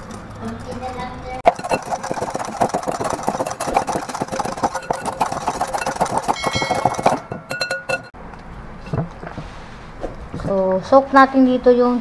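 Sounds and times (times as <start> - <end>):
whisk rattling against glass bowl: 0.0 - 8.1.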